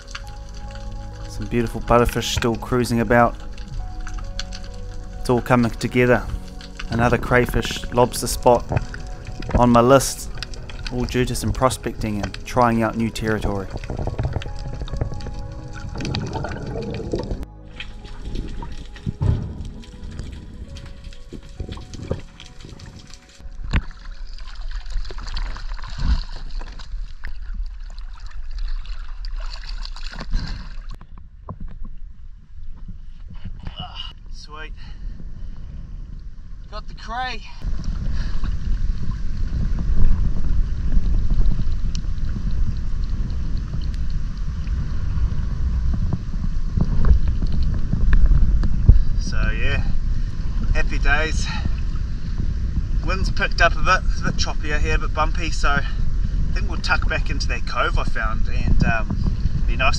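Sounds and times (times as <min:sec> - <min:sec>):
water sloshing and dripping: 0:00.0 - 0:31.1
water gurgling and trickling: 0:00.0 - 0:34.0, 0:35.3 - 0:59.9
wind buffeting microphone: 0:05.0 - 0:24.4, 0:30.9 - 0:59.9.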